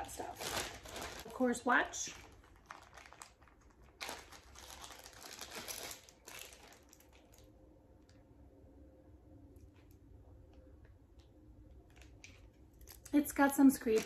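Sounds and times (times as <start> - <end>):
wrapping material crinkling: 0.0 - 8.2, 11.8 - 14.0.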